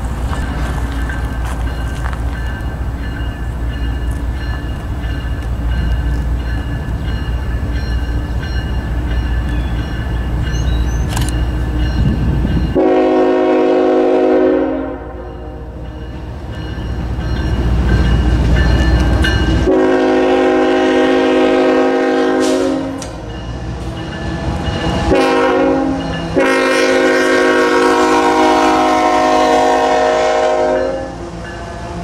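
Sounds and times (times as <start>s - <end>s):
loud low train rumble: 0.0s - 32.0s
locomotive air horn blasts: 12.8s - 15.8s, 19.6s - 23.1s, 25.0s - 32.0s.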